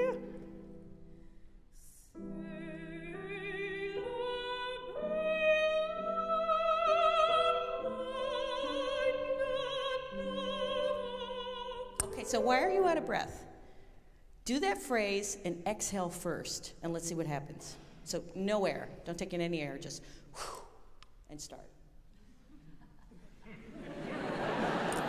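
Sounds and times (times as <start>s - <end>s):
woman singing opera: 0.0s - 0.4s, 2.2s - 13.1s
piano chords: 2.2s - 13.6s.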